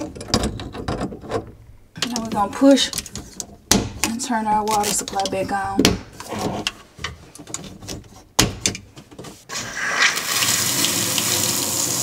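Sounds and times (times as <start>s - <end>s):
water running into steel sink: 9.5s - 12.0s.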